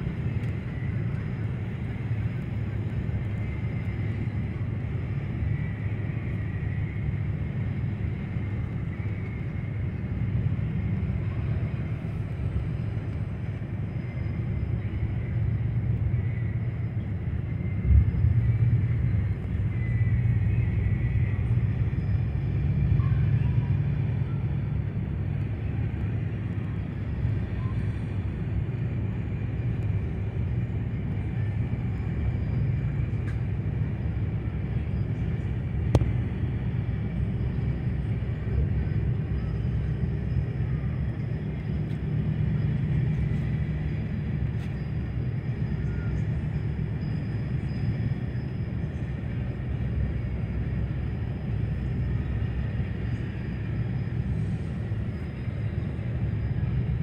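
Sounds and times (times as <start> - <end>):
bus road and engine rumble: 0.0 - 57.0.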